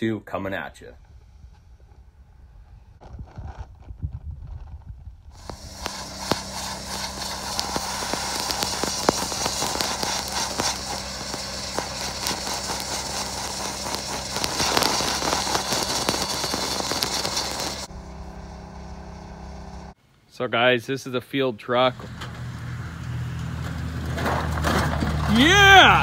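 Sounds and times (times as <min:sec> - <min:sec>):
steady low hum: 0:05.2 - 0:20.0
sandblaster hissing on metal: 0:05.4 - 0:17.9.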